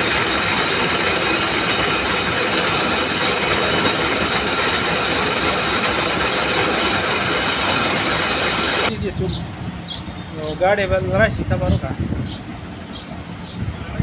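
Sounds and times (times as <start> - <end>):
textile machinery clattering: 0.0 - 8.9.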